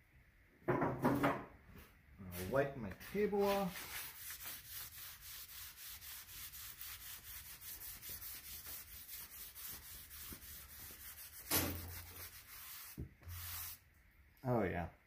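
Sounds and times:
cloth rubbing on steel table: 3.1s - 13.8s.

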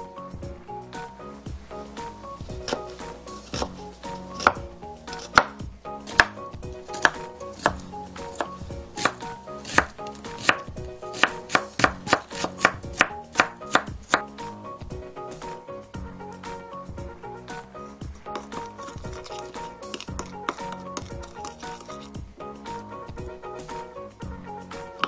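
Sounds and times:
knife chopping on wooden board: 2.5s - 14.3s, 18.3s - 22.0s.

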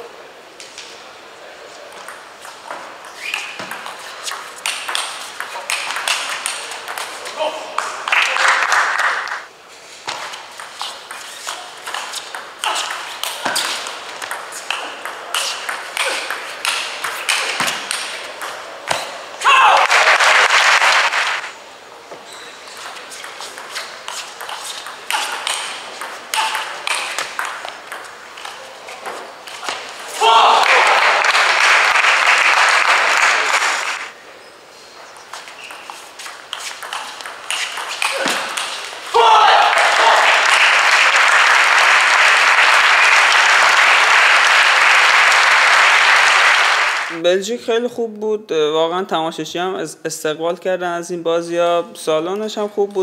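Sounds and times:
crowd noise: 0.0s - 47.2s
spectators applauding: 7.8s - 9.5s, 19.7s - 21.5s, 30.2s - 34.1s, 39.4s - 47.1s
table tennis ball clicking: 36.7s - 38.7s.

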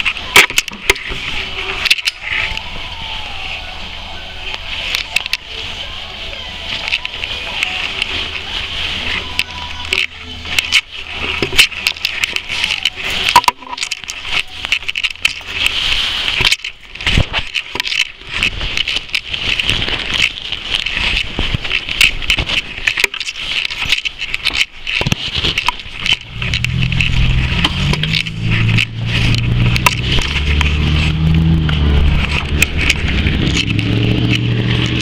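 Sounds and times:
footsteps: 0.0s - 35.0s
vehicle engine running: 25.4s - 35.0s.

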